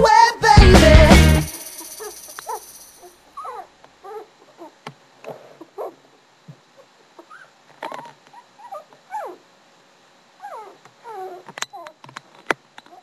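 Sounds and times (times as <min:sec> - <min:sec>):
puppies yipping and whining: 0:01.9 - 0:06.1, 0:06.8 - 0:09.5, 0:10.4 - 0:12.0.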